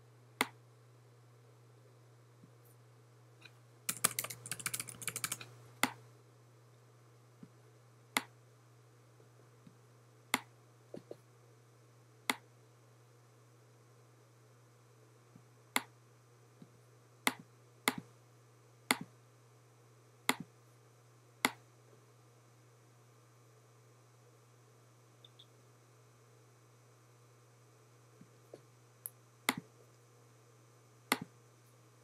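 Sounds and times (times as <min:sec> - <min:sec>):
computer mouse clicks: 0:03.9 - 0:06.0.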